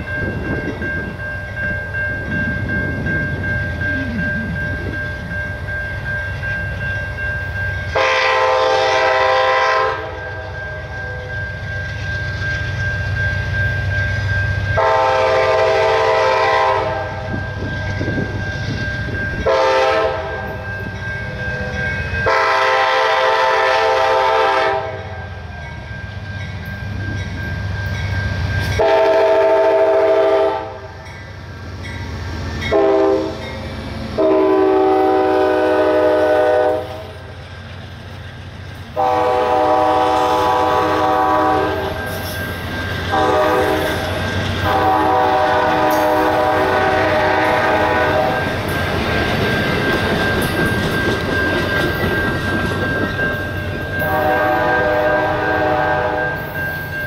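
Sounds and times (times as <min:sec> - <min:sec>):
diesel locomotive engine: 0:00.0 - 0:57.0
train wheels rumbling and clattering: 0:00.0 - 0:57.0
train air horn blasts: 0:07.9 - 0:11.3, 0:14.8 - 0:17.4, 0:19.4 - 0:20.6, 0:22.2 - 0:25.3, 0:28.8 - 0:31.0, 0:32.7 - 0:33.5, 0:34.2 - 0:37.3, 0:39.0 - 0:42.0, 0:43.1 - 0:48.4, 0:54.0 - 0:56.4.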